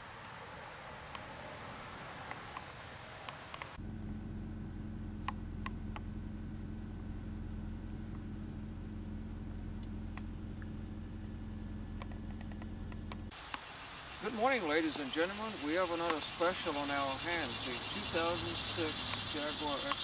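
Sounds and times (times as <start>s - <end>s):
car engine idling: 3.8s - 13.5s, 14.1s - 20.0s
faint clicks: 11.9s - 13.7s.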